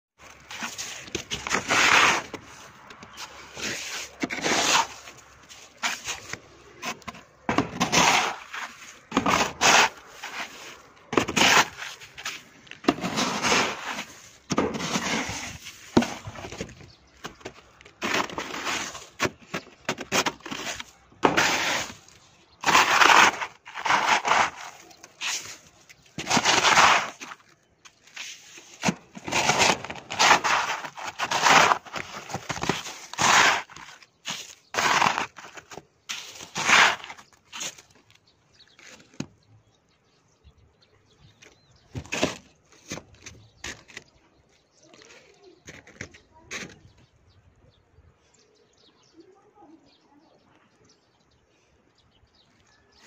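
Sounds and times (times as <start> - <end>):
hailstones crunching and scraping: 7.6 - 27.5, 28.2 - 37.9.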